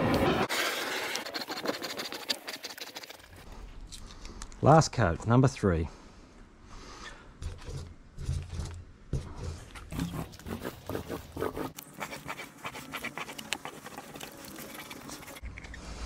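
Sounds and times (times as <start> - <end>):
paint roller sticky crackle: 0.2 - 3.5, 11.5 - 15.4.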